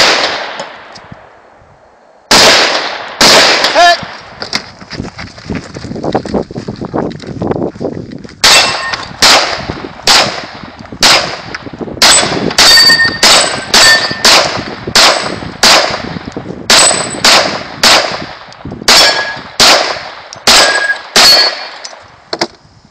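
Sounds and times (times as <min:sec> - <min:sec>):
pistol shots: 0:00.0 - 0:00.9, 0:02.3 - 0:04.4, 0:08.4 - 0:22.0
steel target ringing: 0:08.5 - 0:09.1, 0:12.6 - 0:14.3, 0:20.6 - 0:21.6.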